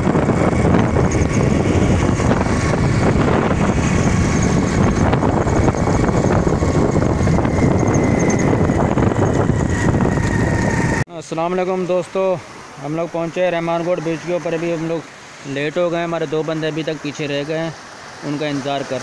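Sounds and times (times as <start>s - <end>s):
motorcycle engine running: 0.0s - 11.0s
wind buffeting microphone: 0.0s - 11.0s.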